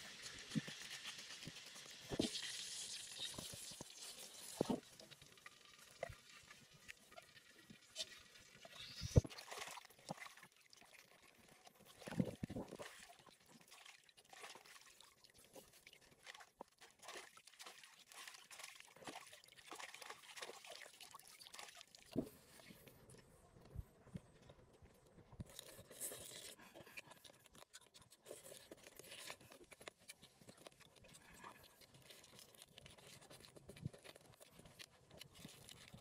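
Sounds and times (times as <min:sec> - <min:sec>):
lettuce splashing in water: 0:16.2 - 0:22.2
person chewing food: 0:22.0 - 0:36.0.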